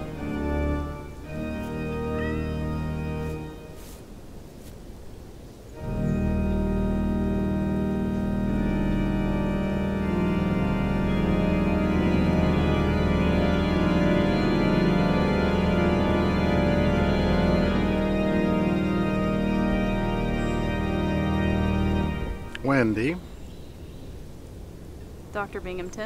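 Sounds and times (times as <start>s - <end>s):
organ chords: 0.0s - 4.2s, 5.7s - 26.0s.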